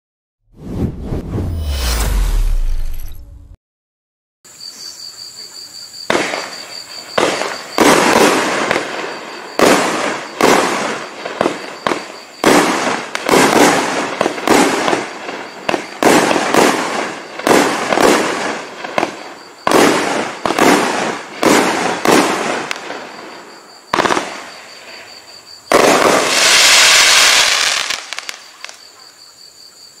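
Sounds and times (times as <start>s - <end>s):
firework shots bursting: 7.2s - 15.1s, 15.7s - 23.0s, 25.7s - 28.8s
firework crackle: 7.2s - 25.1s, 25.7s - 28.8s.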